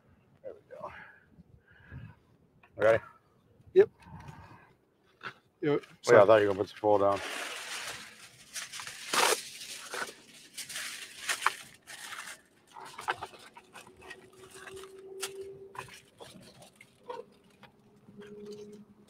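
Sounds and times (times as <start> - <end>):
aluminium foil crinkling: 6.3 - 18.8.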